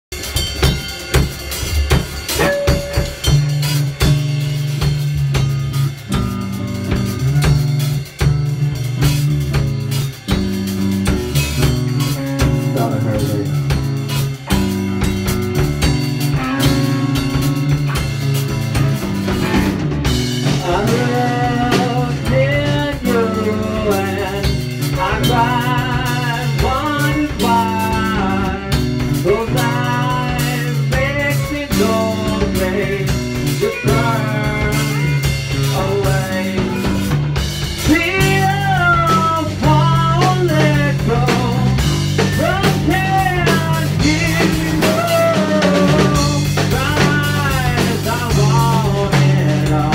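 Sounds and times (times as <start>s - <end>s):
drum kit: 0.0s - 49.9s
electric bass: 0.0s - 49.9s
electric guitar: 0.2s - 49.9s
lead vocal through microphone: 12.4s - 13.6s, 20.6s - 37.0s, 37.9s - 49.9s.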